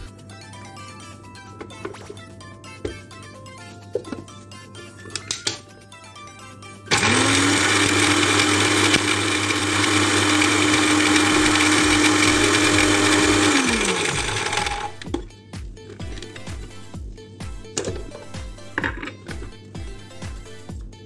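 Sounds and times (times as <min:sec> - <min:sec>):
electric blender grinding spices: 0:06.9 - 0:15.1.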